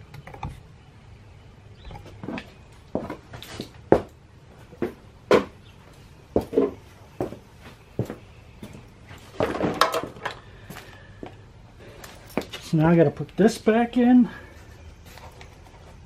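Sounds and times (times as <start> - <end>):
rustling clatter of parts: 9.2 - 11.0, 11.9 - 12.8.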